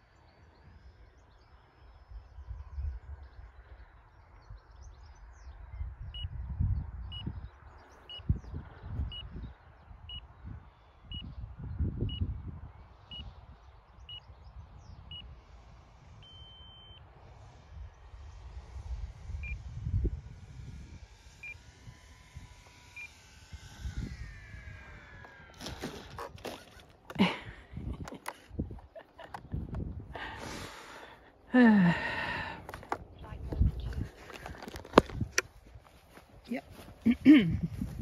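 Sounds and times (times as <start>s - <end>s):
wind buffeting microphone: 0.6s - 16.2s, 17.2s - 38.0s
electric motor whine: 15.3s - 28.6s
short electronic beeps: 16.2s - 17.0s.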